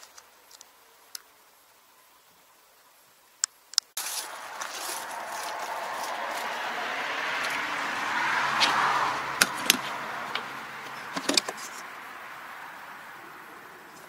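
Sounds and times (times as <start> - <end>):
rush of noise: 4.0 - 14.0
toolbox latches clicking: 9.4 - 9.9, 11.1 - 11.7.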